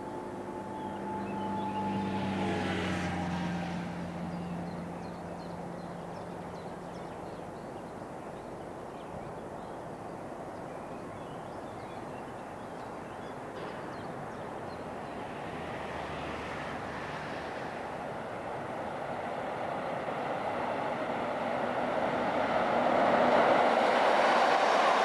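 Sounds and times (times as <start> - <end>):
humming tone: 0.0 - 4.0
train wheels rumbling on rail: 17.1 - 25.0.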